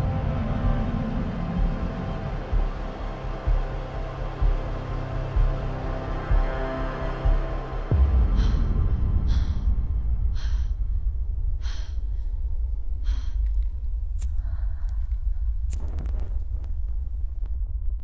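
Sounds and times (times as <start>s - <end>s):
deep rumble: 0.0s - 18.0s
woman gasping breaths: 8.2s - 13.6s.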